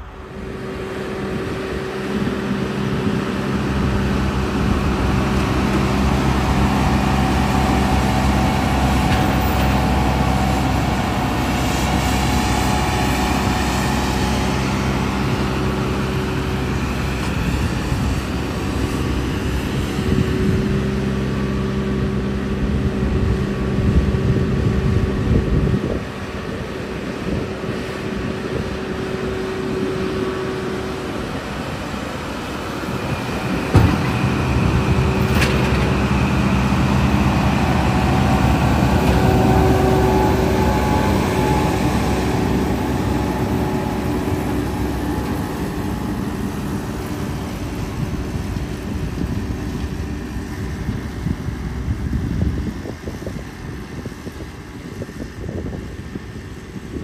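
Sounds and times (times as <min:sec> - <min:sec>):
baler machinery running: 0:00.0 - 0:57.0
tractor engine under load: 0:00.0 - 0:57.0.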